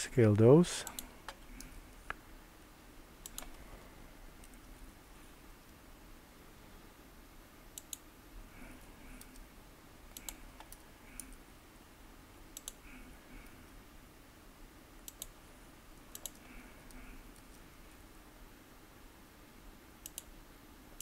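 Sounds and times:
mouse and keyboard clicks: 3.2s - 3.6s, 10.1s - 11.4s, 12.6s - 12.8s, 15.1s - 15.3s, 16.1s - 17.6s.

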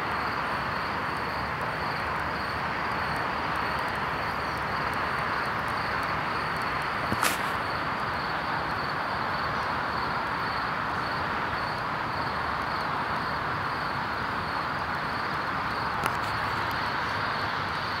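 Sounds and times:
even hiss: 4.0s - 8.7s.

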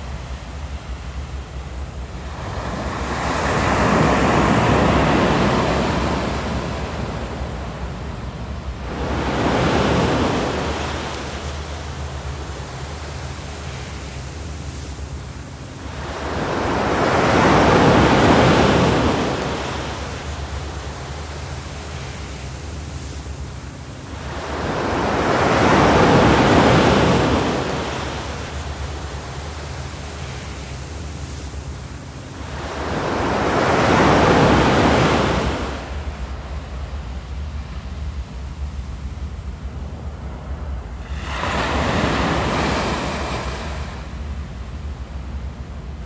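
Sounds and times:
surf breaking on beach: 2.2s - 12.5s, 15.8s - 21.0s, 24.1s - 28.9s, 32.4s - 36.8s, 40.4s - 44.4s.

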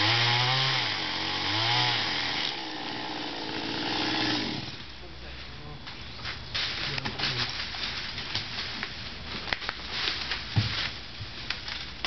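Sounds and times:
leaves and branches rustling: 4.8s - 12.0s
branches snapping: 6.6s - 12.0s.

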